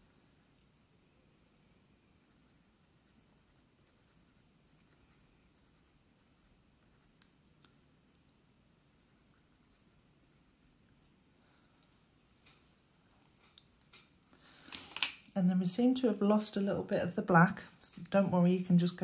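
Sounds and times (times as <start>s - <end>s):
coloured pencil scratching on paper: 2.2s - 7.2s, 8.8s - 10.6s.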